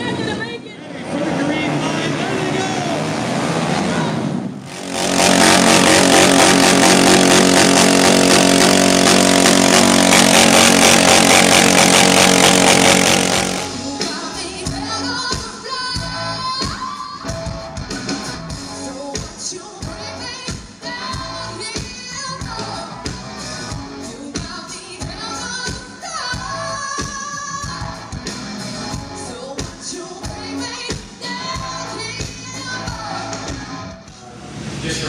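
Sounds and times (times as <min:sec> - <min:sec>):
rock band playing: 0:04.7 - 0:14.4
woman singing: 0:13.8 - 0:17.4, 0:18.8 - 0:22.9, 0:24.0 - 0:28.0, 0:29.2 - 0:34.0.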